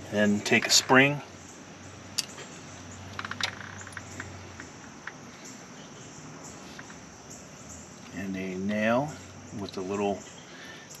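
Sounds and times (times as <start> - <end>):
light metal clicks: 2.1 - 5.2.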